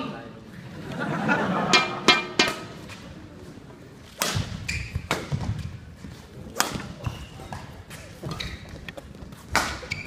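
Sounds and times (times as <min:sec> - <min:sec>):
rackets hitting shuttlecock: 0:01.7 - 0:03.1, 0:04.0 - 0:10.0.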